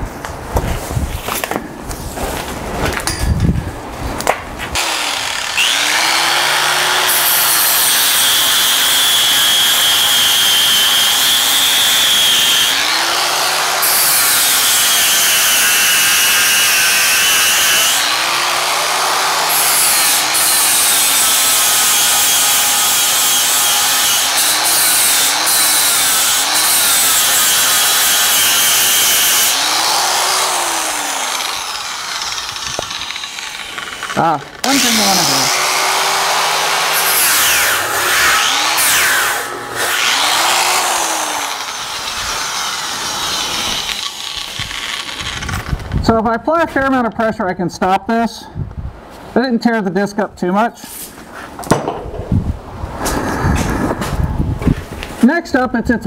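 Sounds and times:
angle grinder grinding steel: 4.8s - 45.8s.

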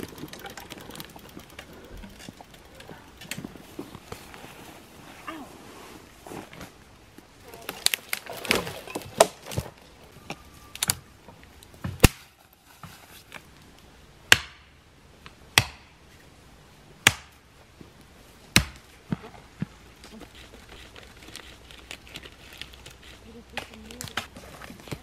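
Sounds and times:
dry branches snapping: 7.5s - 9.7s.

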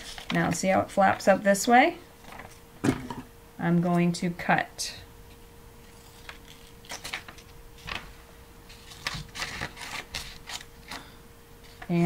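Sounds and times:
scissors snipping paper: 5.9s - 7.4s, 8.7s - 10.7s.

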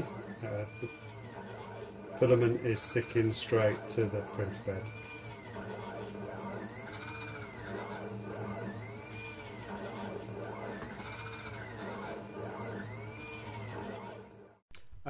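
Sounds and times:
stepper motors whining: 0.0s - 14.6s
steady hum: 0.0s - 15.0s.

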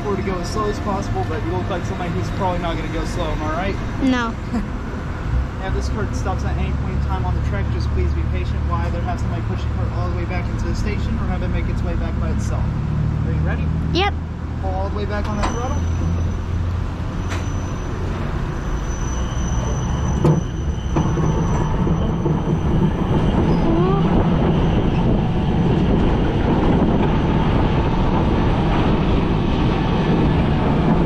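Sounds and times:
cart wheels rumbling on metal track: 17.2s - 31.0s.

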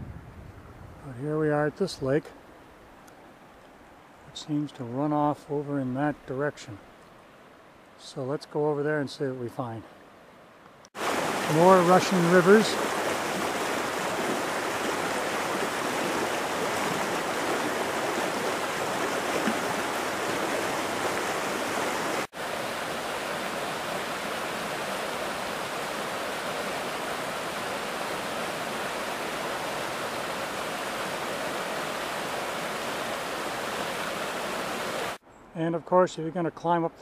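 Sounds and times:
creek rushing over rocks: 11.0s - 35.2s.

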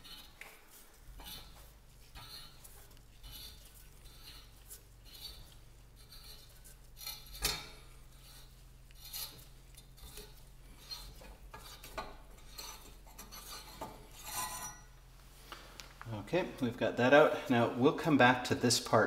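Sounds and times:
metal threads grating: 0.0s - 15.0s.

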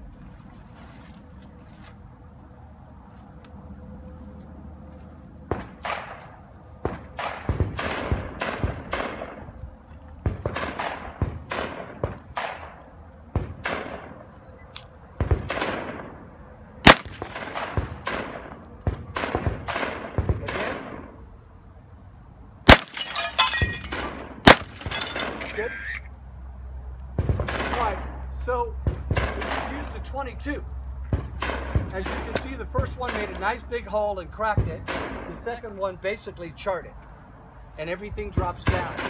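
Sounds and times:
gunshots echoing: 5.5s - 9.5s, 10.2s - 14.2s, 15.2s - 21.2s, 22.7s - 25.6s, 27.2s - 28.2s, 28.8s - 30.0s, 34.5s - 35.4s, 38.4s - 39.0s
sharp close gunshot cracks: 10.3s - 12.8s, 15.2s - 16.2s, 16.8s - 21.1s, 22.7s - 23.0s, 24.0s - 24.9s.

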